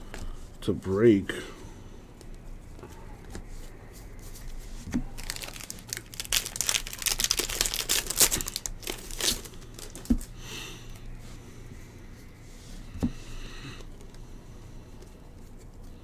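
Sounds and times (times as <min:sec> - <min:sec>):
foil wrapper crinkling and tearing: 0:05.1 - 0:10.3.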